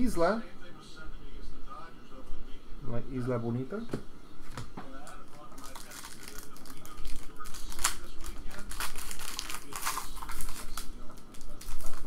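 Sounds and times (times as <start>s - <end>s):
foil wrapper crinkling and tearing: 5.1s - 12.0s.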